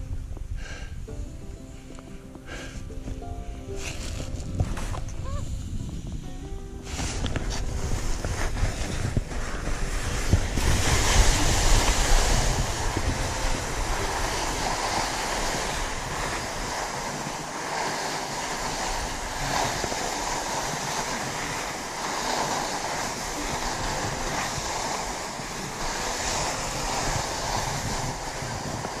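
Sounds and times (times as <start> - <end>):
skis scraping on snow: 1.6 - 29.0
wind buffeting microphone: 2.9 - 29.0.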